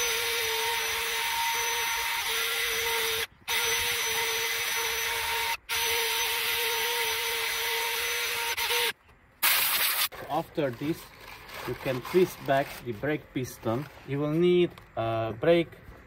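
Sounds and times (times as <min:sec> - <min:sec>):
drill motor whine: 0:00.0 - 0:08.9
wire brush scratching metal: 0:08.4 - 0:14.2.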